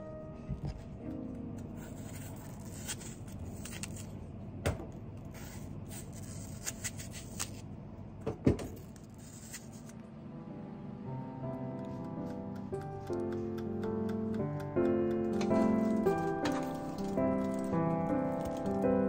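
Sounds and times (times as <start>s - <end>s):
low background hum: 0.0s - 19.0s
knife cutting apple: 1.8s - 4.1s, 5.3s - 7.6s.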